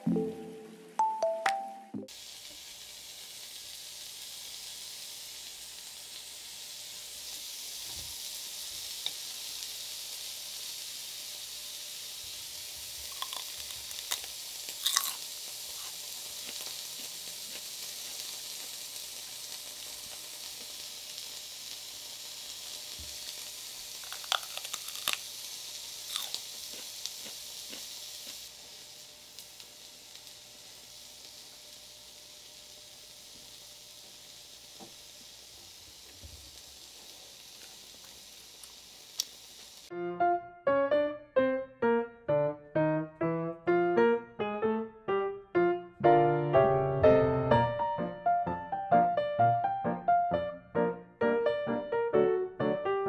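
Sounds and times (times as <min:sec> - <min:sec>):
meat sizzling on grill pan: 0:02.1 - 0:39.9.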